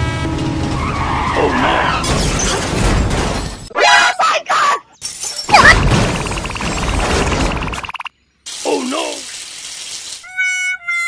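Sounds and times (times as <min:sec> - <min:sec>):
high cartoon yelps: 0:03.7 - 0:04.9, 0:05.5 - 0:05.9.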